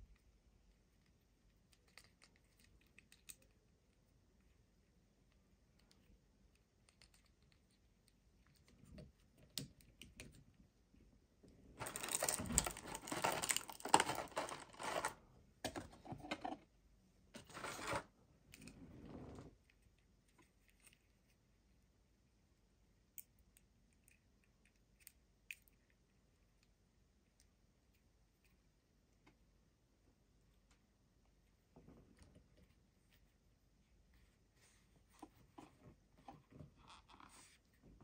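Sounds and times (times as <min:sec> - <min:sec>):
plastic packaging crinkling: 0:11.8 - 0:15.2, 0:17.4 - 0:18.0.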